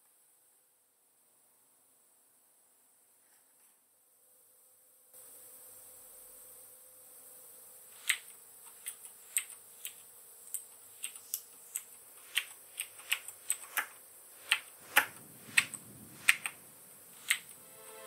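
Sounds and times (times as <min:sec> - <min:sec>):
keyboard typing clicks: 0:08.0 - 0:16.6, 0:17.2 - 0:17.6.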